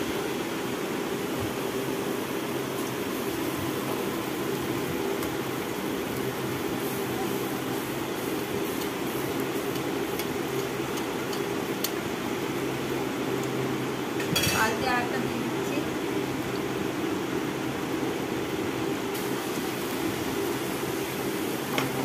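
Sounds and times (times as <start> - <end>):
batter sizzling in hot oil: 0.0 - 22.0
spatula clicking against pan: 9.7 - 12.0.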